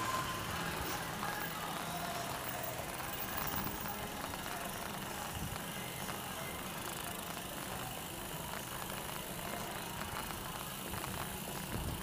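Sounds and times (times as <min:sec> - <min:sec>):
bicycle tyres rolling on pavement: 0:00.0 - 0:12.0
wind rumble on microphone: 0:10.9 - 0:12.0.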